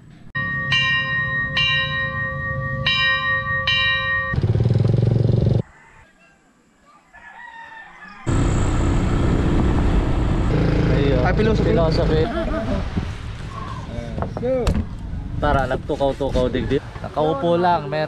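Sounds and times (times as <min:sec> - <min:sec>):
bell ringing: 0:00.4 - 0:04.4
motorcycle engine running: 0:04.3 - 0:05.6, 0:08.3 - 0:12.1
faint rooster crowing: 0:05.6 - 0:08.4, 0:16.4 - 0:17.4
wind rush: 0:11.7 - 0:16.8.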